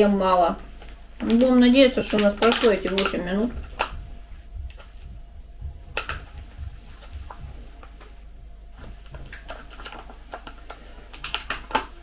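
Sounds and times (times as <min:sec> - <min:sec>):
plastic pouch crinkling: 0:00.7 - 0:04.9, 0:08.7 - 0:12.0.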